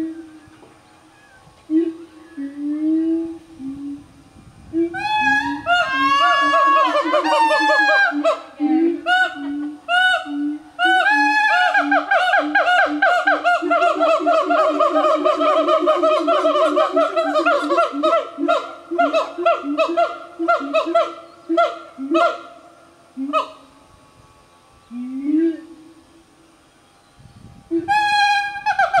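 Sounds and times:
gibbons hooting calls: 4.7s - 23.8s, 27.7s - 29.0s.

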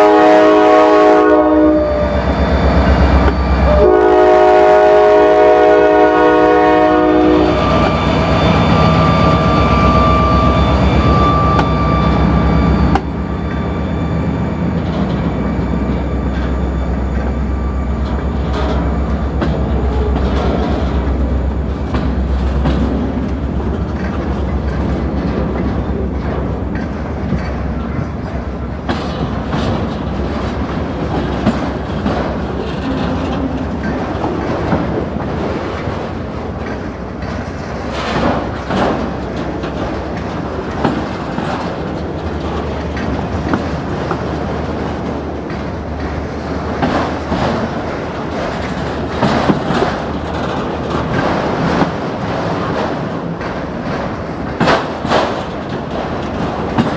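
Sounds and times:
freight cars rolling on rails: 0.0s - 56.9s
clicks and clanks of wheels: 21.8s - 56.9s.

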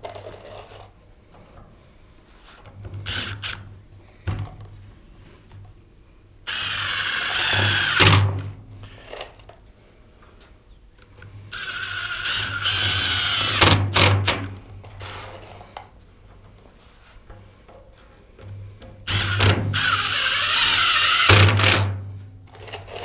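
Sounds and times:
cordless drill motor whine: 3.0s - 3.6s, 6.5s - 8.2s, 11.5s - 13.8s, 19.1s - 21.9s.

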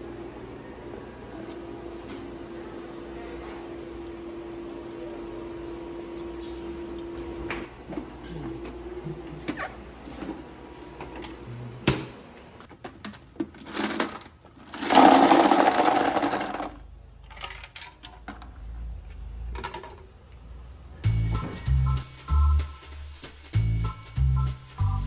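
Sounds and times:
ice cubes clattering into cooler: 13.4s - 18.4s.

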